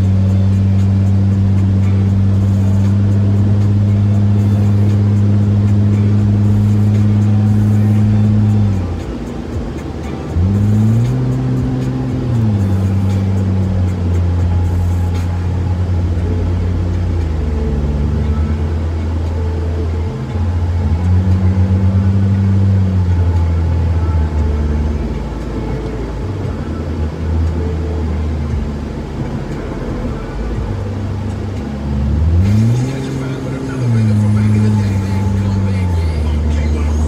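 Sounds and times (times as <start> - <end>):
car exhaust drone: 0.0 - 37.0.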